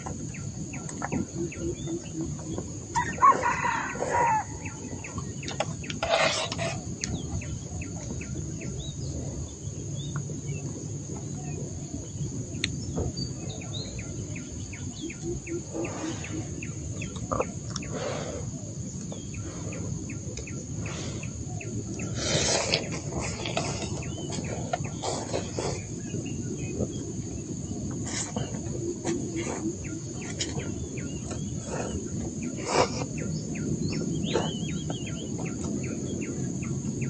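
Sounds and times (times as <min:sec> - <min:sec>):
bird chirps: 0:00.0 - 0:18.4, 0:28.2 - 0:37.0
insect drone: 0:00.0 - 0:37.0
low background rumble: 0:00.0 - 0:37.0.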